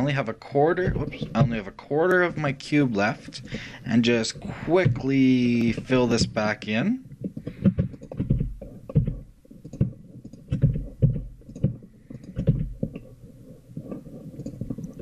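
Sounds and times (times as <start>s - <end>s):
computer mouse clicks: 7.2s - 13.1s.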